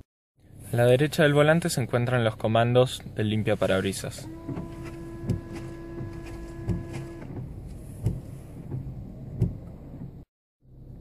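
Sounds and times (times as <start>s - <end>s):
washer pump whining: 4.1s - 7.6s.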